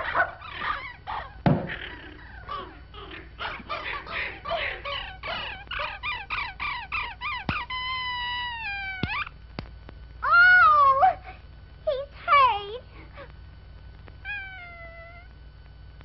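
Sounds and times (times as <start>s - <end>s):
squeaky cartoon yelps: 3.4s - 9.3s.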